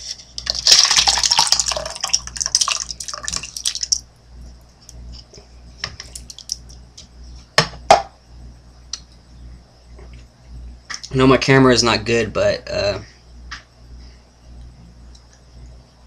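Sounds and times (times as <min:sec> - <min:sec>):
soup pouring from a can: 0:00.4 - 0:04.0.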